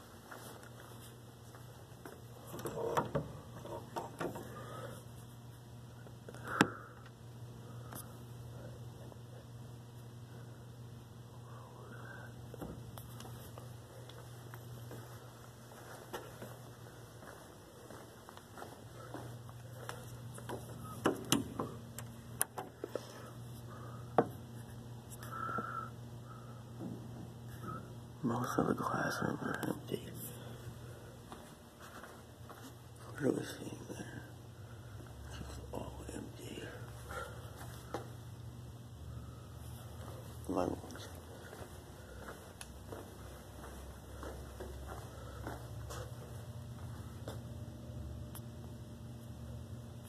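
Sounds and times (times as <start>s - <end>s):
steady low hum: 0.0s - 50.0s
sharp clicks and knocks: 20.4s - 22.7s.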